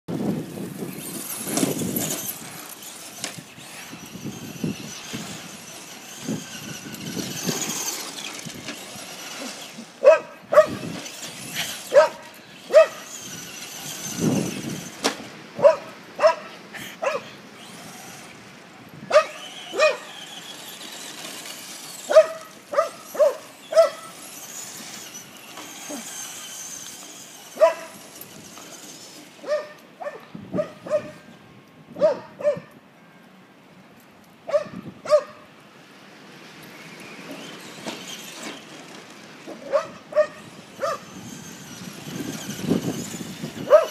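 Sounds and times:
toy truck motor whirring: 0.2s - 30.0s, 36.0s - 43.9s
small dog barking: 10.0s - 10.8s, 11.9s - 13.0s, 15.6s - 17.2s, 19.1s - 20.0s, 29.5s - 31.2s, 32.0s - 32.7s, 34.5s - 35.4s, 43.7s - 43.9s.

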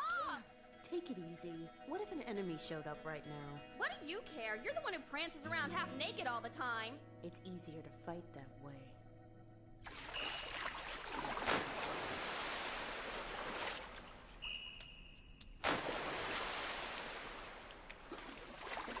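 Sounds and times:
pool water splashing: 9.8s - 14.8s, 15.6s - 19.0s
big splash: 9.9s - 14.4s, 15.6s - 19.0s.

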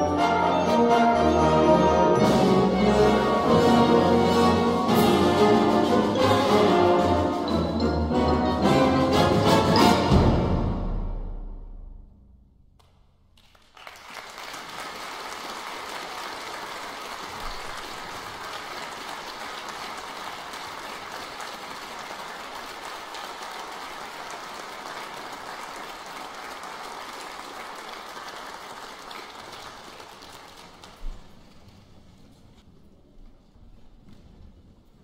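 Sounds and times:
audience applauding: 13.4s - 32.0s.

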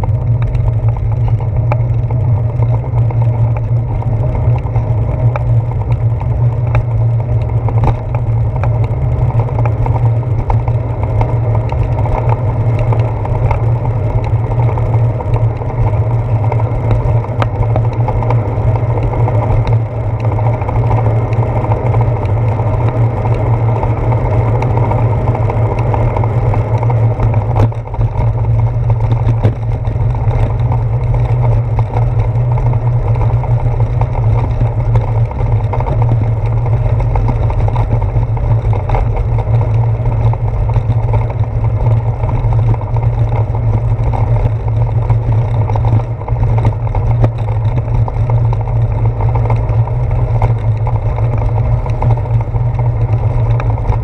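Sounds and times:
wind and road noise: 0.0s - 54.0s
knocks from road bumps: 27.2s - 32.1s.

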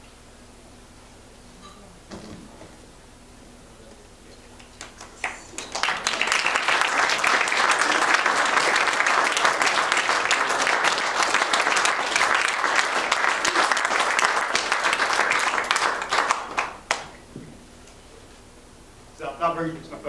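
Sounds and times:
crowd applauding: 4.5s - 17.2s.

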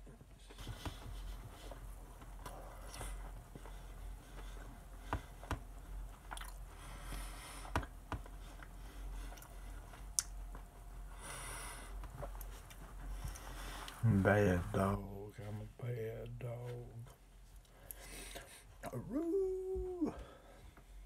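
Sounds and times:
man chewing food: 0.5s - 14.0s.

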